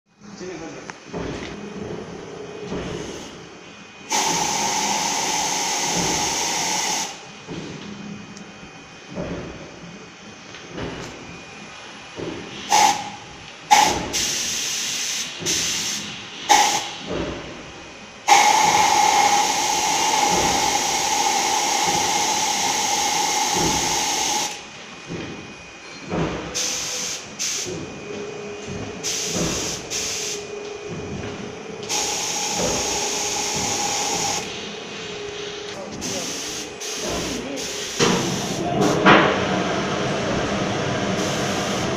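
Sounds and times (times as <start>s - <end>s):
spray gun hissing: 4.1s - 7.2s, 12.7s - 17.0s, 18.3s - 24.6s, 29.0s - 30.4s, 31.9s - 34.5s, 36.0s - 39.0s, 41.2s - 41.9s.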